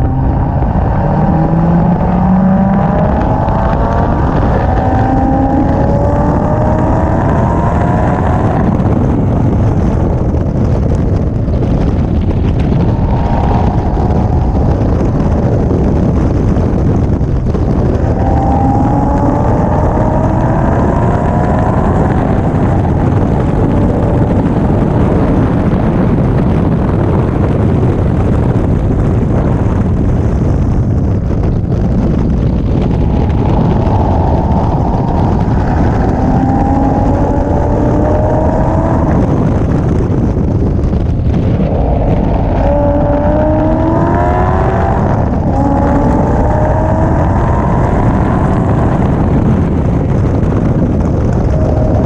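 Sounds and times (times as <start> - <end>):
car engine accelerating: 0.0 - 52.0
wind rush on microphone: 0.0 - 52.0.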